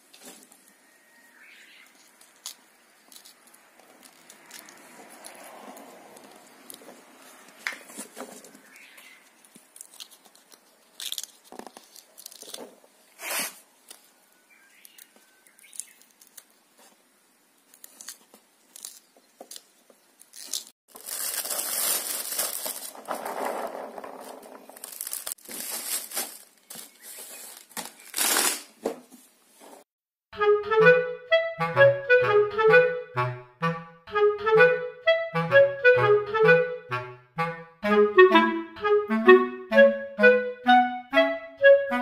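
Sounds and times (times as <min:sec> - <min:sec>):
pea pods cracking open: 0:01.9 - 0:06.8, 0:09.4 - 0:12.8, 0:14.8 - 0:16.6, 0:17.6 - 0:26.9, 0:27.6 - 0:28.7
plastic bag crinkling: 0:09.5 - 0:12.9, 0:17.7 - 0:28.8.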